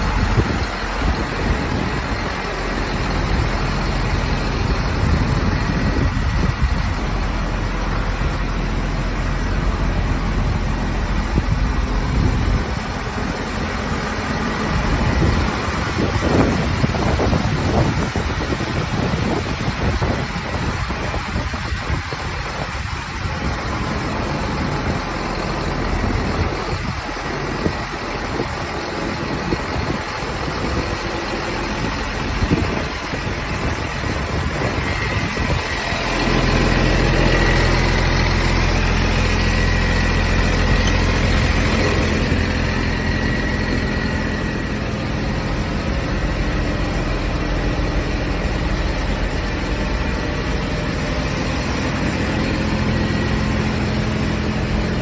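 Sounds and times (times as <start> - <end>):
diesel engine idling: 0.0 - 55.0
gusty noise: 29.3 - 46.4.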